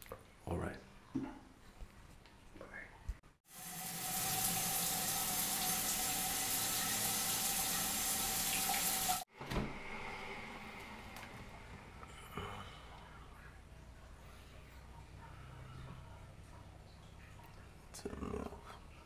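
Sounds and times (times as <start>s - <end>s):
shower water hissing on tiles: 3.5s - 9.3s.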